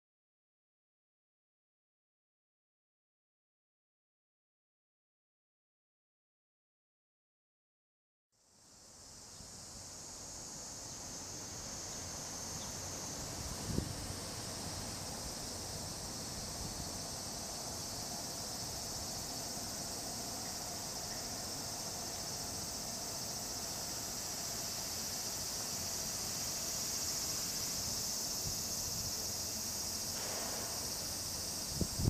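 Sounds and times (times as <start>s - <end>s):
cicadas shrilling: 8.6s - 32.0s.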